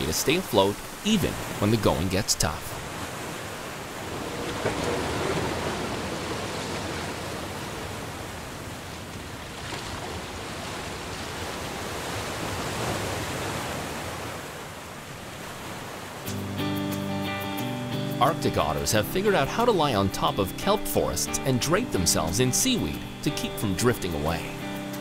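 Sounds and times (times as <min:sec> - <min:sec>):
surf breaking over rocks: 0:00.0 - 0:16.4
water splash: 0:00.0 - 0:16.4.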